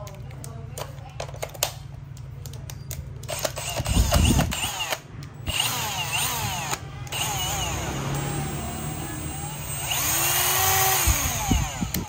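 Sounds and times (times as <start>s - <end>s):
drill clicks: 3.2s - 12.0s
hammer drill motor whining: 3.3s - 12.0s.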